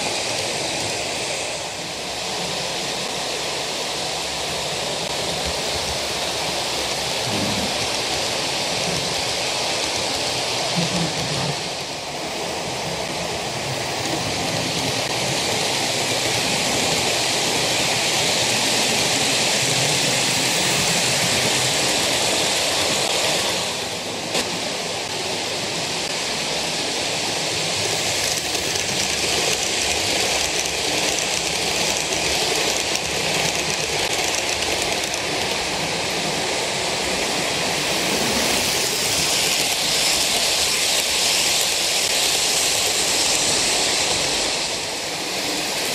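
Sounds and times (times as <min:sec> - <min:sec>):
model train wheels rattling: 0:27.6 - 0:36.3.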